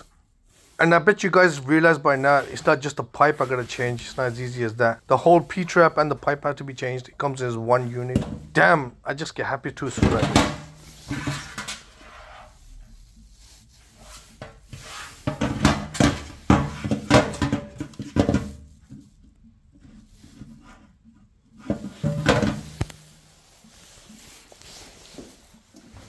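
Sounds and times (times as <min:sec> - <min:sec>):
plastic pipe rattling: 0:15.2 - 0:23.6
plastic pipe knocking on steel sink: 0:15.3 - 0:18.8.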